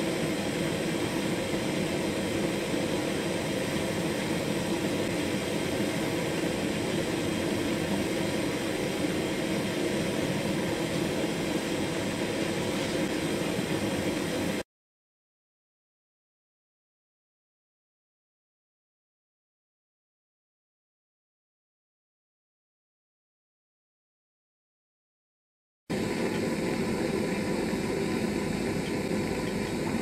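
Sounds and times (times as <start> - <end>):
gas torch hissing: 0.0 - 14.6, 25.9 - 30.0.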